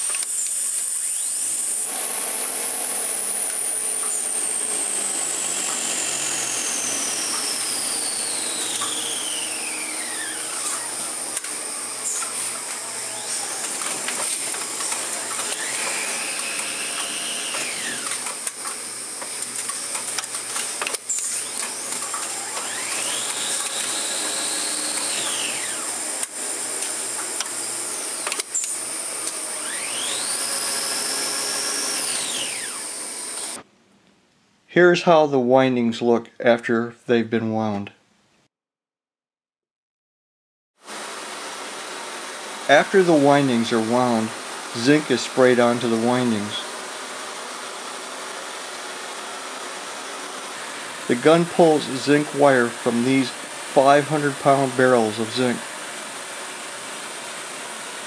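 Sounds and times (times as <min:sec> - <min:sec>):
winding machine motor whine: 0:00.0 - 0:33.6, 0:40.9 - 0:58.0
sharp clicks: 0:13.6 - 0:24.0, 0:28.2 - 0:29.4.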